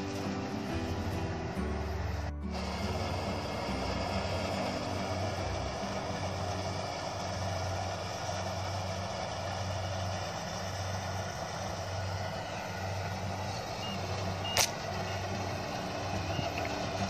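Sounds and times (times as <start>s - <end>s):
combine harvester running: 0.0s - 17.0s
sharp click: 14.5s - 14.8s.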